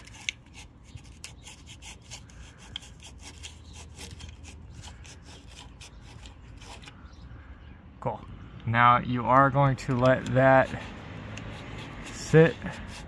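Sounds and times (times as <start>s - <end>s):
towelette scrubbing on glass: 0.0s - 6.9s, 10.4s - 13.0s.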